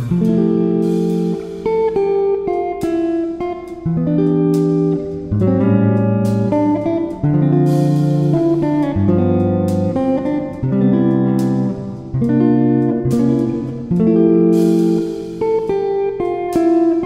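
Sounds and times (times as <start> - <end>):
plucked guitar music: 0.0 - 17.0.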